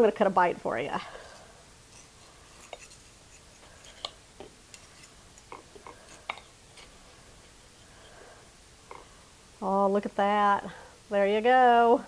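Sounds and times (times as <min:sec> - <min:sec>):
cutlery scraping a plate: 0:01.9 - 0:06.9.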